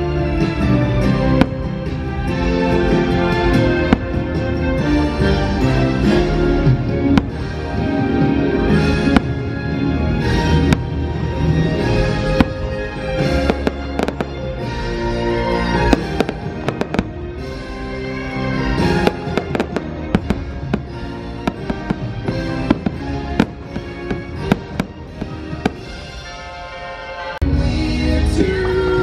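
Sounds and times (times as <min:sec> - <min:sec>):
music: 0:00.0 - 0:29.0
fireworks bangs and pops: 0:03.3 - 0:05.4, 0:06.7 - 0:14.7, 0:15.7 - 0:17.6, 0:18.6 - 0:26.4.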